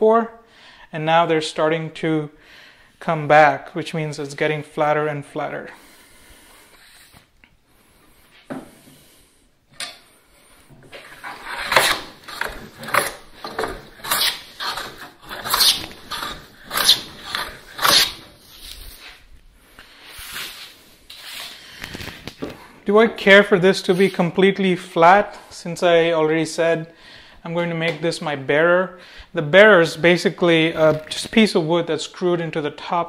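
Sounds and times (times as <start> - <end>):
hand plane strokes on wood: 10.9 - 19.1.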